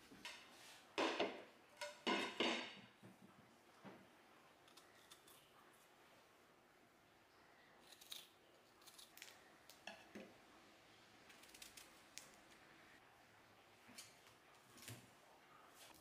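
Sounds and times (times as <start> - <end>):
faint crisp clicks and crackles: 11.3 - 12.7.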